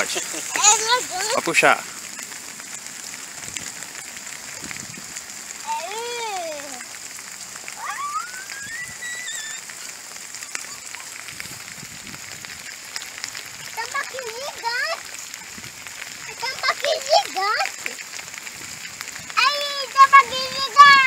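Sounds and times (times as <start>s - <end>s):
rain hissing on pond: 0.0s - 21.0s.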